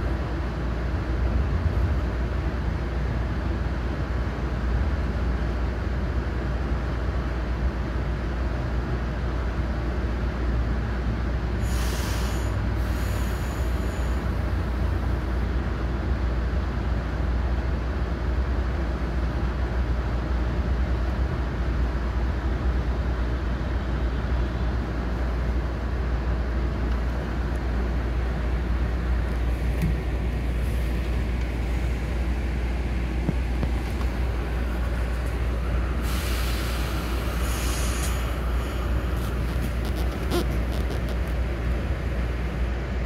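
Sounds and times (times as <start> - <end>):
train rumble from inside car: 0.0 - 43.0
brief high hiss: 11.6 - 14.2, 36.0 - 40.6.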